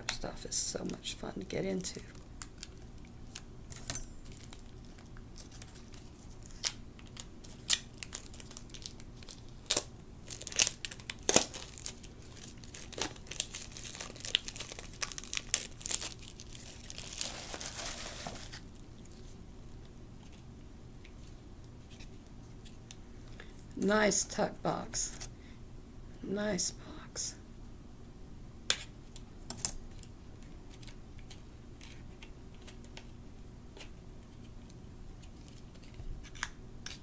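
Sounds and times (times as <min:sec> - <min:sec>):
plastic wrap crinkling: 0:04.3 - 0:19.4.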